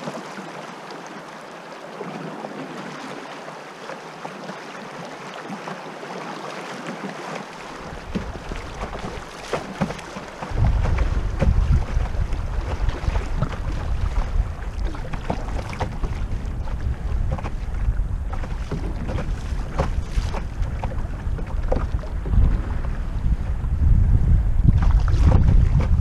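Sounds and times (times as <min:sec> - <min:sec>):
river water lapping on canoe hull: 0:00.0 - 0:26.0
wind rumbling on microphone: 0:07.8 - 0:26.0.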